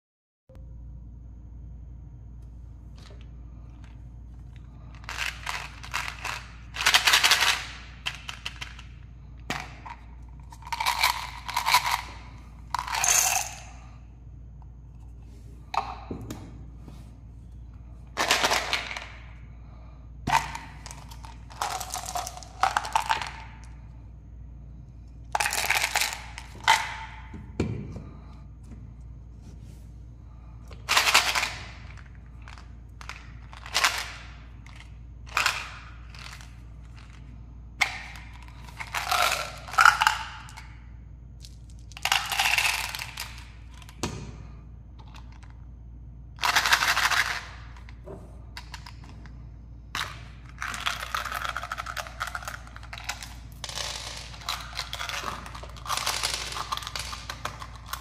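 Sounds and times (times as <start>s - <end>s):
pellets rattling in plastic bottle: 4.7s - 8.9s, 9.9s - 13.7s, 20.3s - 23.7s, 30.8s - 37.2s, 38.2s - 40.6s, 41.8s - 43.6s, 50.0s - 58.0s.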